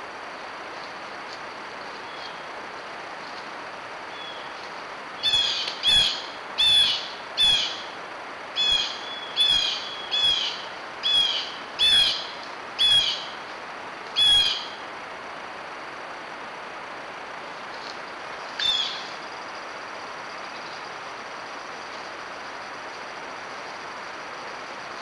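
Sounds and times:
bird calling: 0:04.1 - 0:04.6, 0:05.2 - 0:07.9, 0:08.6 - 0:13.4, 0:14.2 - 0:14.8, 0:18.6 - 0:19.2.

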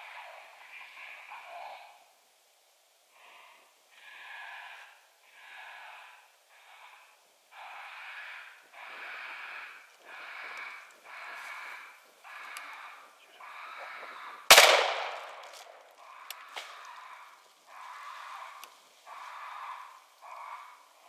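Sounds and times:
electronic raccoon call squalls: 0:07.6 - 0:14.5, 0:16.0 - 0:21.0.

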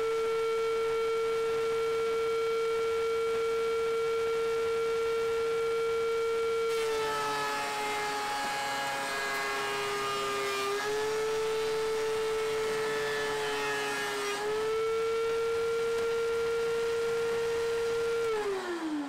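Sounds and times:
thickness planer whine: 0:00.0 - 0:19.0
planer knives rasping wood: 0:06.7 - 0:14.8.

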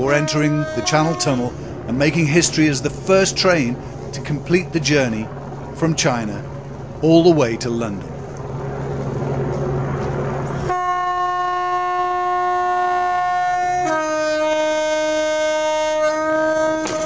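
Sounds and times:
locomotive horn: 0:00.0 - 0:01.7, 0:10.6 - 0:17.0
electric locomotive hum and rumble: 0:00.0 - 0:17.0.

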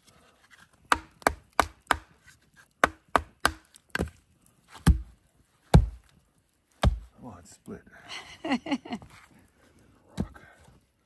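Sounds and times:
hammer striking hatchet: 0:00.9 - 0:02.1, 0:02.8 - 0:04.1, 0:04.8 - 0:05.1, 0:05.7 - 0:06.0, 0:06.8 - 0:07.1.

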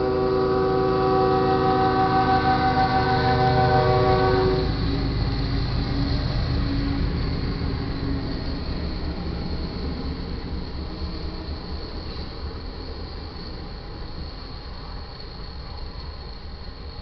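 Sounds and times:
train horn: 0:00.0 - 0:05.2
train rumbling past: 0:00.0 - 0:17.0.

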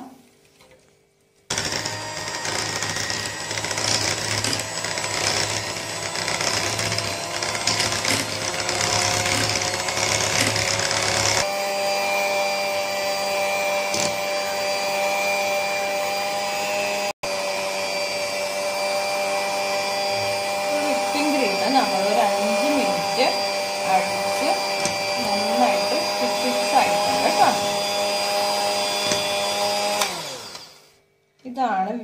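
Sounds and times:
electric hand mixer whirring: 0:01.5 - 0:31.1.

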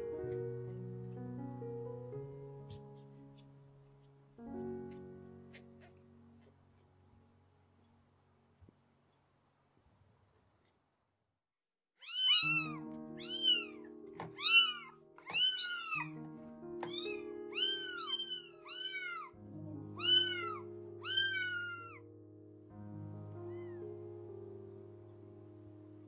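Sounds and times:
kitten mewing: 0:12.0 - 0:13.7, 0:14.3 - 0:16.0, 0:16.8 - 0:19.3, 0:20.0 - 0:22.0.

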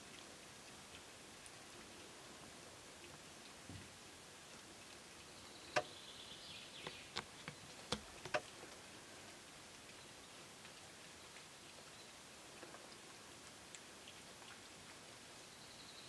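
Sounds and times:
sharp clicks and snaps: 0:06.8 - 0:08.6.

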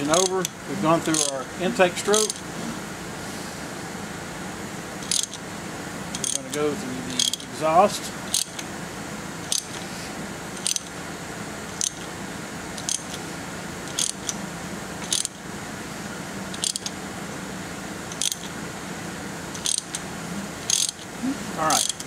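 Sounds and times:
ratchet wrench clicking: 0:00.0 - 0:01.4, 0:02.2 - 0:02.4, 0:05.0 - 0:05.4, 0:06.1 - 0:07.5, 0:08.3 - 0:08.7, 0:09.5 - 0:09.8, 0:10.6 - 0:10.9, 0:11.8 - 0:12.1, 0:12.8 - 0:13.2, 0:13.8 - 0:14.4, 0:15.0 - 0:15.4, 0:16.5 - 0:16.9, 0:18.1 - 0:18.5, 0:19.5 - 0:20.0, 0:20.7 - 0:21.1, 0:21.7 - 0:22.0
steady shop hum: 0:00.0 - 0:22.0.

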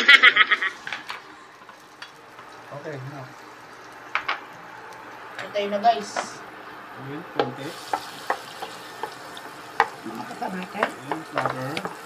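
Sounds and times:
butter sizzling in a pan: 0:00.6 - 0:12.0
wooden spatula tapping pan: 0:07.4 - 0:12.0.

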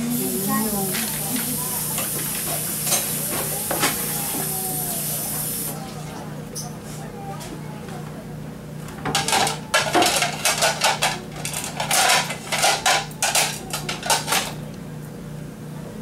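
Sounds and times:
dishes clattering: 0:09.0 - 0:14.6.

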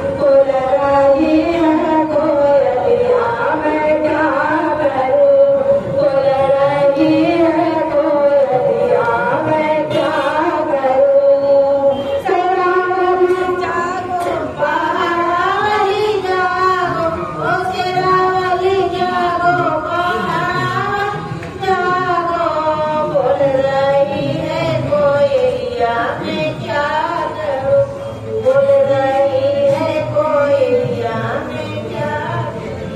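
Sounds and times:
women singing devotional song: 0:00.0 - 0:32.9.

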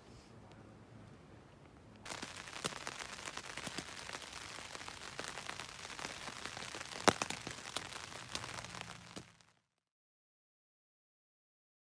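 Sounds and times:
campfire crackling and popping: 0:01.6 - 0:09.7.

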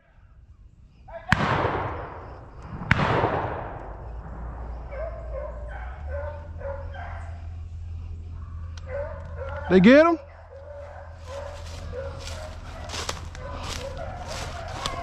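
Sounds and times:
shotgun shots echoing: 0:01.3 - 0:04.9
dogs baying: 0:04.0 - 0:15.0.

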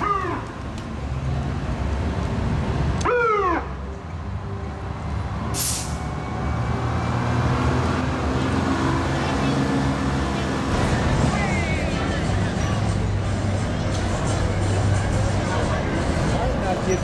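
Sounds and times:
fire engine running: 0:04.0 - 0:17.0
air brake hiss: 0:05.6 - 0:06.0.

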